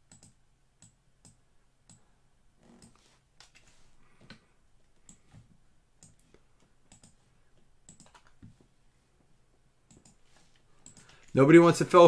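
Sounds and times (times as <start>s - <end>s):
keyboard and mouse clicks: 0.0s - 2.0s, 2.7s - 5.3s, 6.0s - 7.2s, 7.8s - 8.6s, 9.9s - 11.4s.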